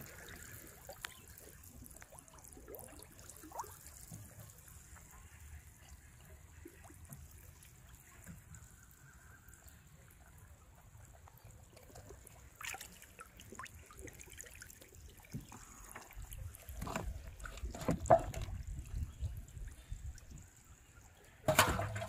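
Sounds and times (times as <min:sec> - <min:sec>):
water splash in metal pot: 0:21.5 - 0:22.0.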